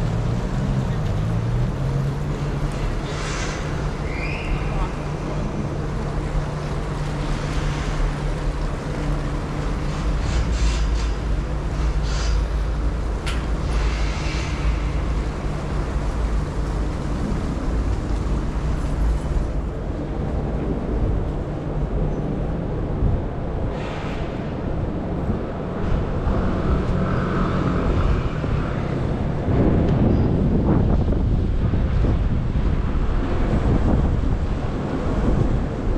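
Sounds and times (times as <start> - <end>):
engine rumble: 0.0 - 35.9.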